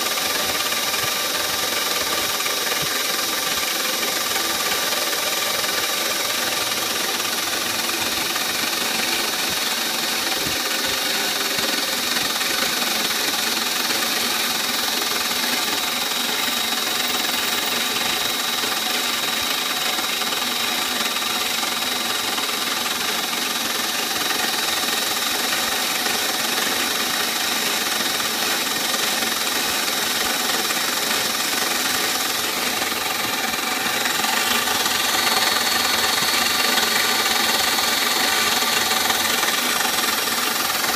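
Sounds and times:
high spindle whine: 0:28.0 - 0:40.9.

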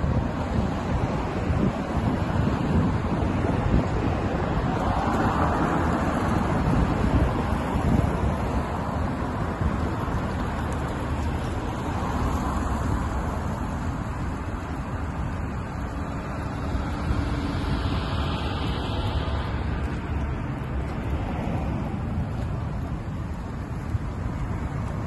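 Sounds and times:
cars driving past: 0:00.0 - 0:25.0.

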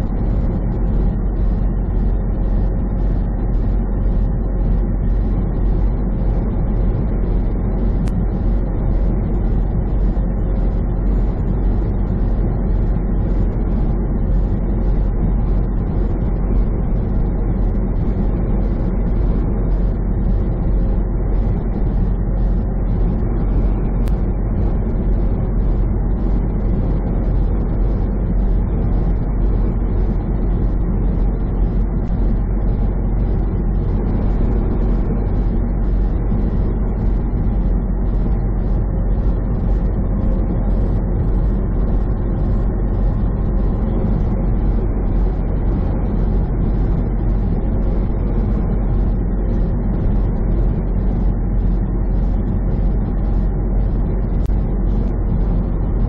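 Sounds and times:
truck engine drone: 0:00.0 - 0:56.0.

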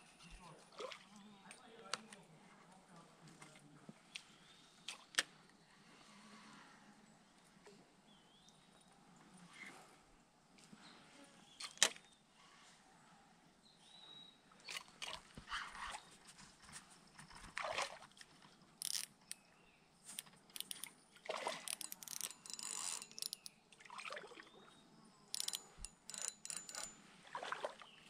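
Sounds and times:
lure splashing on water: 0:17.5 - 0:19.1, 0:20.5 - 0:24.6, 0:25.3 - 0:27.9.

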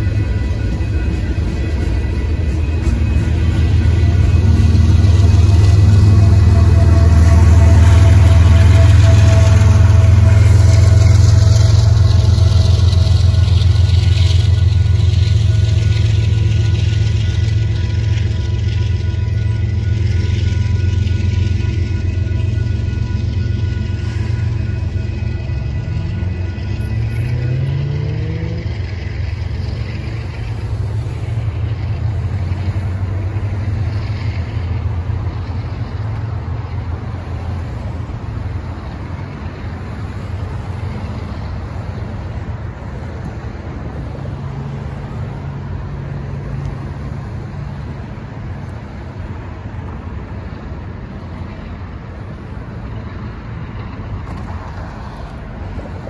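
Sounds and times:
engine revving: 0:27.0 - 0:29.0.

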